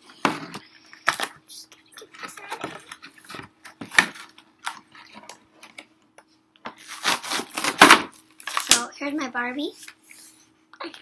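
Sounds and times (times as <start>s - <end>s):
packaging sharp crack: 6.9s - 8.8s.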